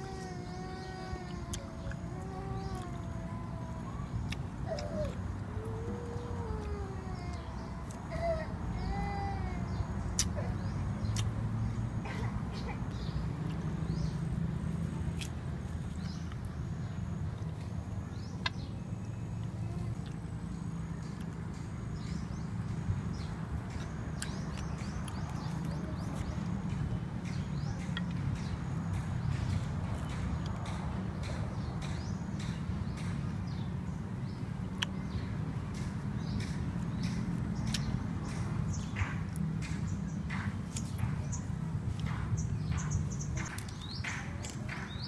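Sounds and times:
bird calling: 0:00.0 - 0:11.3.

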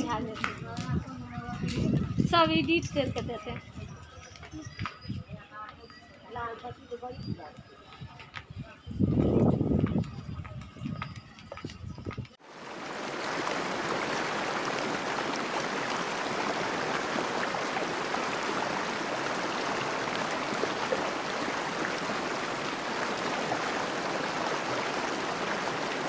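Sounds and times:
fast river water rushing: 0:12.4 - 0:26.0.

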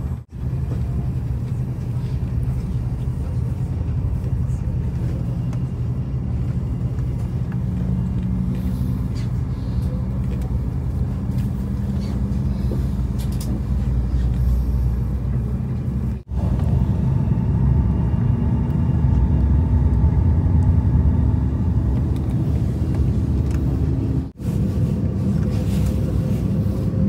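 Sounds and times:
low rumble in aircraft cabin: 0:00.0 - 0:27.0
jet engine spooling up hum: 0:16.3 - 0:24.4.

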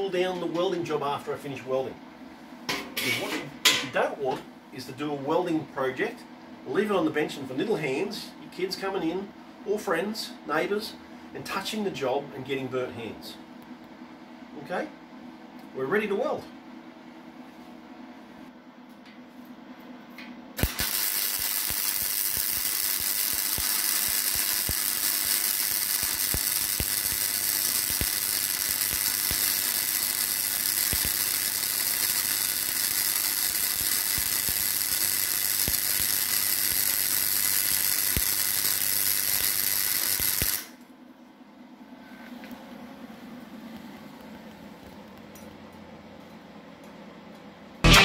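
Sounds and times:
welding arc hissing and popping: 0:20.6 - 0:40.8.

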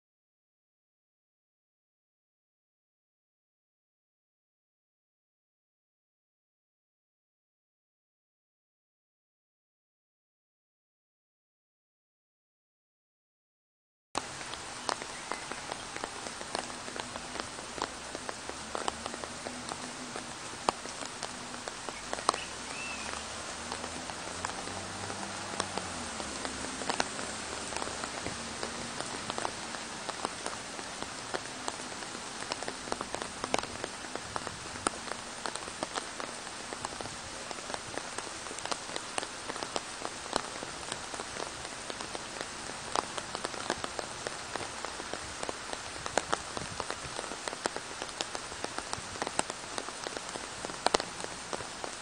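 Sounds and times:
rain falling on leaves: 0:14.2 - 0:52.0.

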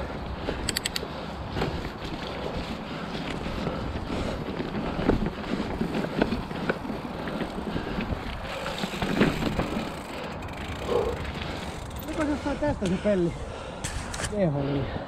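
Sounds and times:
bike tyre and frame rattle: 0:00.0 - 0:13.2
wheels knocking on rocks: 0:00.4 - 0:12.4.

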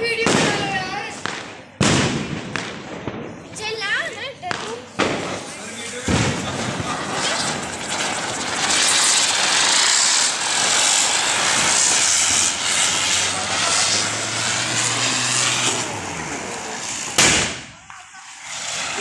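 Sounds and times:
ground spinner firecracker hissing: 0:04.7 - 0:19.0.

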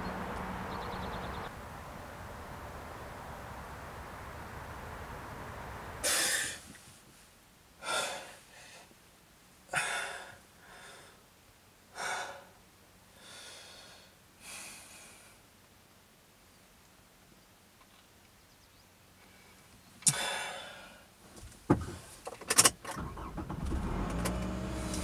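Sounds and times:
background hiss: 0:00.0 - 0:25.0
person breathing heavily: 0:06.0 - 0:06.7, 0:07.8 - 0:08.9, 0:09.7 - 0:11.2, 0:11.9 - 0:12.6, 0:13.2 - 0:15.4, 0:20.1 - 0:21.1.

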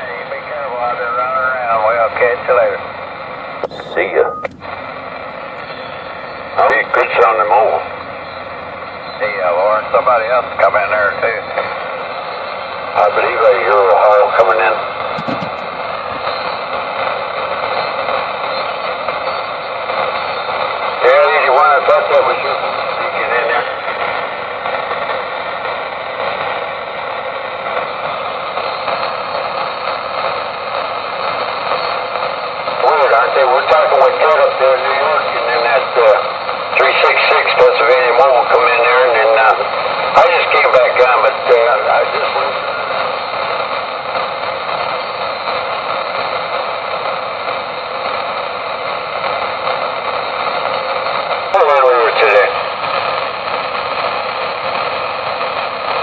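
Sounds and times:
radio static hiss: 0:00.0 - 0:56.0.

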